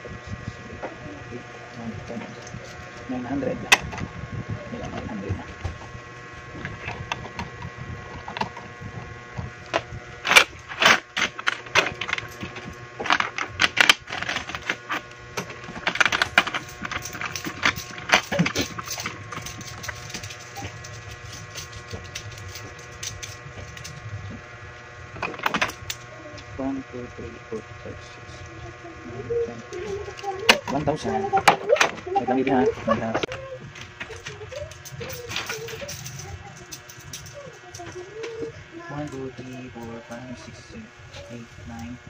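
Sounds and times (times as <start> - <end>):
steady electric hum: 0.0 - 42.0
coins clinking: 15.8 - 24.0, 33.8 - 38.0.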